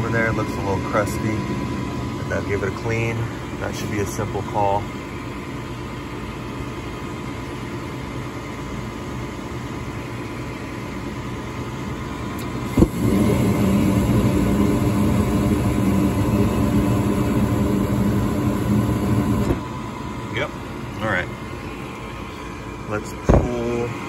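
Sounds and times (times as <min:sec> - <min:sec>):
furnace burner rumble: 0:00.0 - 0:24.0
furnace draft inducer hum: 0:00.0 - 0:24.0
burners lighting with a thump: 0:12.4 - 0:19.7, 0:23.1 - 0:23.9.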